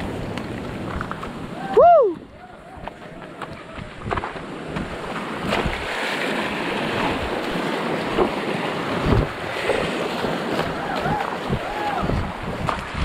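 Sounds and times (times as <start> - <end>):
stream water rushing: 0.0 - 13.0.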